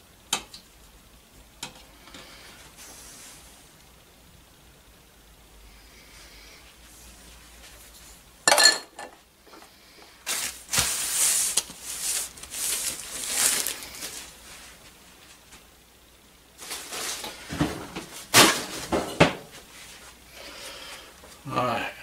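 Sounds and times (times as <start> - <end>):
plastic bag crinkling: 10.2 - 14.8, 16.6 - 17.4.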